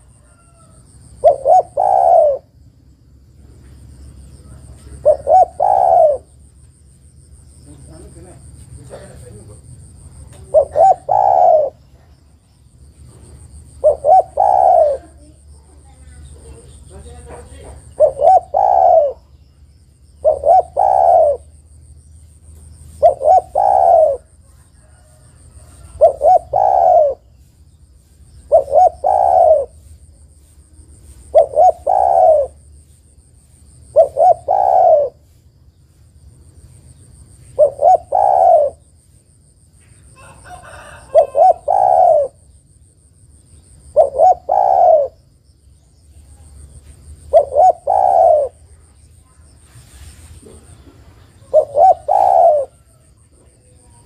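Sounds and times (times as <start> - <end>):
dove cooing: 0.0 - 2.6, 4.5 - 6.5, 8.8 - 12.2, 13.1 - 19.5, 20.1 - 21.6, 22.8 - 27.4, 28.4 - 30.1, 31.1 - 32.7, 33.8 - 35.4, 37.5 - 39.0, 40.2 - 42.6, 43.8 - 45.3, 46.5 - 54.0.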